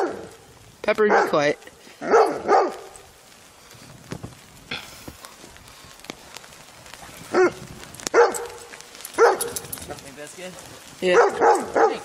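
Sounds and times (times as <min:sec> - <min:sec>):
dog barking: 0:00.0 - 0:00.3, 0:01.0 - 0:01.4, 0:02.0 - 0:03.0, 0:07.3 - 0:09.7, 0:11.1 - 0:12.0.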